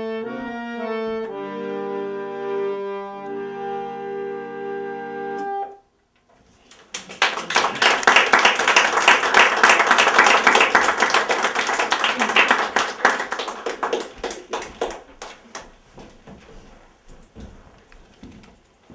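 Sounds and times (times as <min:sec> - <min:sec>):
accordion chord: 0:00.0 - 0:05.9
audience applauding: 0:06.7 - 0:15.8.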